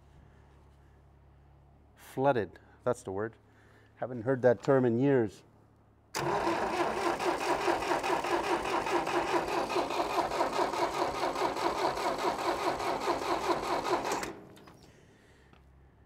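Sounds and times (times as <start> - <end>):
starter motor cranking engine: 6.2 - 14.9.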